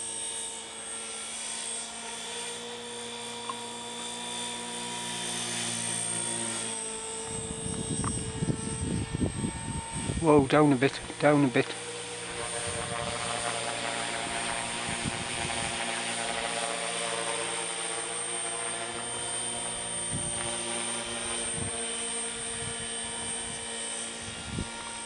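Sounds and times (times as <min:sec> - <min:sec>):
rc helicopter motor whine: 0:00.0 - 0:25.0.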